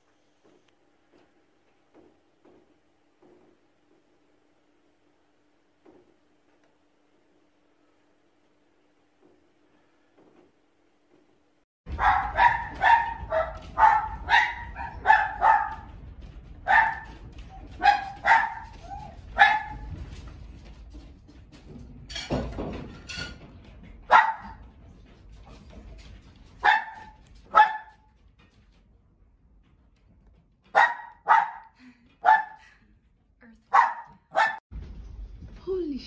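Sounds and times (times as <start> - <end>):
dog barking: 11.9 - 15.9, 16.7 - 17.1, 17.8 - 18.8, 19.4 - 19.9, 24.1 - 24.6, 26.6 - 28.0, 30.7 - 32.6, 33.7 - 34.6.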